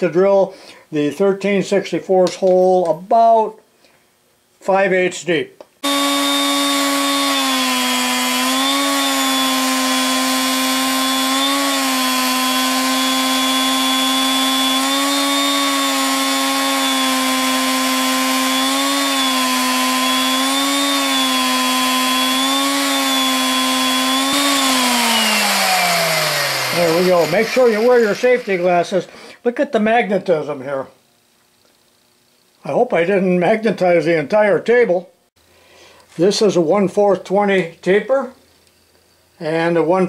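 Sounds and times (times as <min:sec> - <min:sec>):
magnetic drill motor humming: 0:05.8 - 0:29.0.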